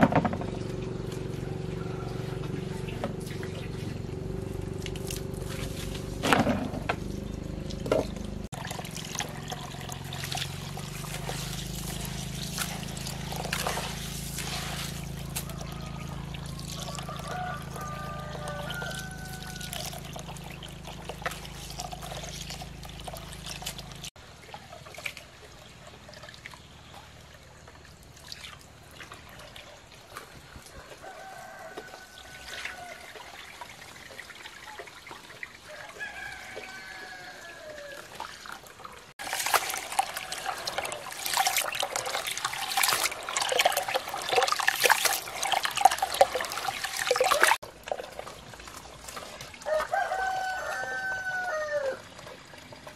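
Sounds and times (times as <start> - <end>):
water running from hose into basin: 0.6 - 6.3, 7.0 - 52.9
roosters crowing: 1.2 - 2.9, 15.2 - 20.1, 30.7 - 33.2, 35.7 - 38.2, 39.7 - 41.2, 49.6 - 52.2
hands splashing in water: 39.2 - 47.6.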